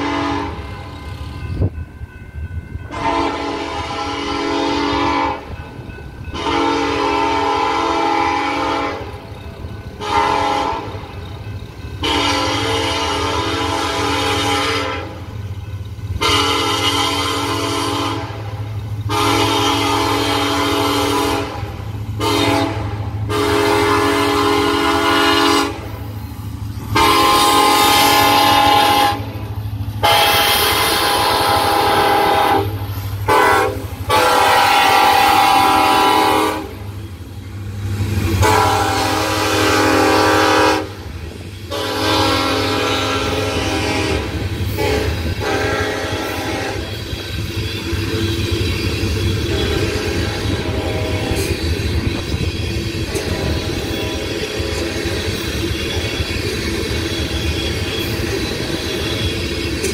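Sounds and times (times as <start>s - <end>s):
locomotive air horn blasts: 0.0s - 0.7s, 2.9s - 5.6s, 6.3s - 9.2s, 10.0s - 11.0s, 12.0s - 15.3s, 16.2s - 26.0s, 27.0s - 29.4s, 30.0s - 37.0s, 38.3s - 47.1s, 49.0s - 51.5s, 53.0s - 54.6s
low rumble of train: 0.0s - 59.9s.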